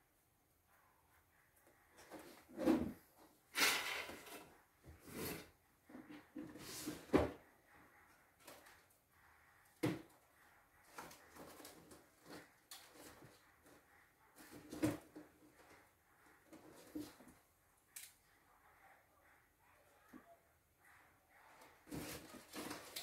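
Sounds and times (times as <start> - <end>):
rustling of objects: 10.8 - 18.2, 21.4 - 23.0.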